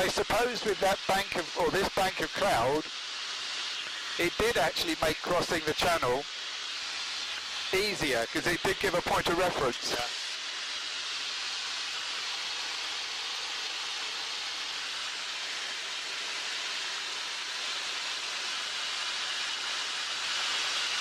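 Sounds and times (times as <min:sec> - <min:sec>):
cockpit intercom hiss: 0:00.0 - 0:02.9, 0:03.8 - 0:06.3, 0:07.7 - 0:10.1.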